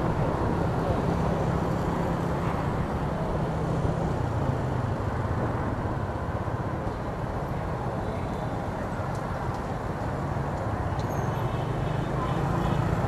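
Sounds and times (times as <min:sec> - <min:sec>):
road and wind noise: 0:00.0 - 0:13.0
scooters in traffic: 0:00.0 - 0:13.0.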